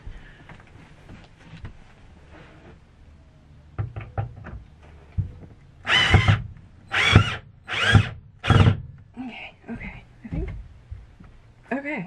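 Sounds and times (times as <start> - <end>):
cordless drill driving screw: 5.9 - 8.8.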